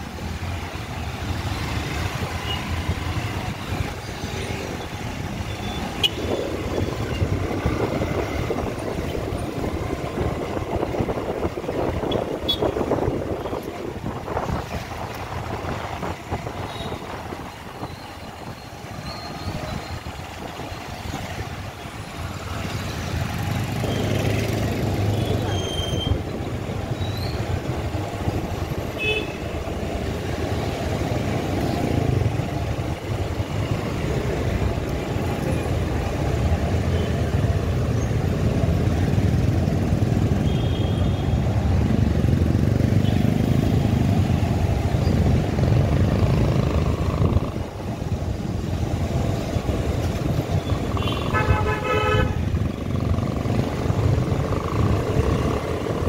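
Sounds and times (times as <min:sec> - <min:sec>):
motorcycle engine and wind rumble: 0:00.0 - 0:56.0
vehicle horn honking: 0:51.0 - 0:52.4.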